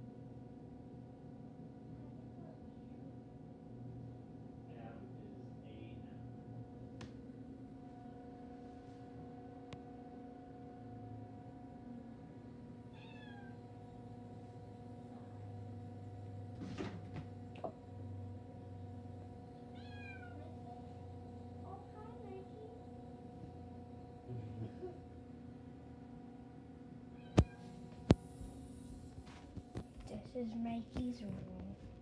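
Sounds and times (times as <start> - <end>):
steady low hum: 0.0 - 32.0
cat meowing: 12.9 - 13.6, 19.7 - 20.5.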